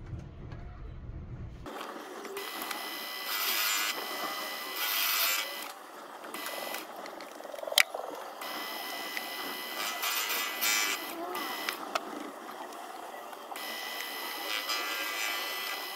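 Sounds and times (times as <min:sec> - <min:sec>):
lathe whining: 0:01.7 - 0:15.9
cutting tool hissing on steel: 0:02.4 - 0:05.7, 0:09.6 - 0:11.8, 0:13.6 - 0:15.9.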